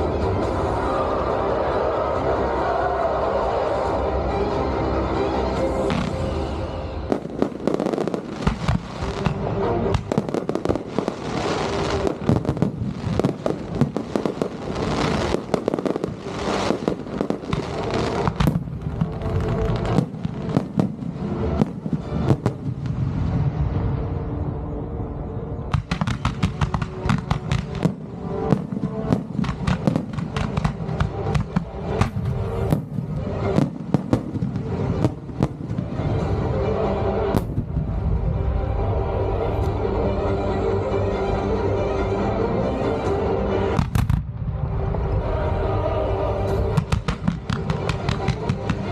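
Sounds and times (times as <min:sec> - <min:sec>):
music: 0:00.0 - 0:48.9
fireworks banging and crackling: 0:05.8 - 0:23.7, 0:25.7 - 0:36.5, 0:37.2 - 0:38.2, 0:43.7 - 0:44.6, 0:46.4 - 0:48.9.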